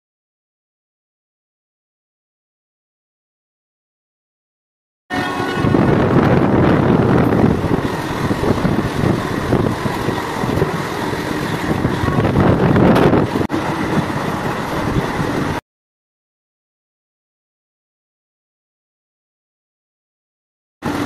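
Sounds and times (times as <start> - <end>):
train rumbling along track: 5.1 - 15.6
rush of air: 5.6 - 15.6.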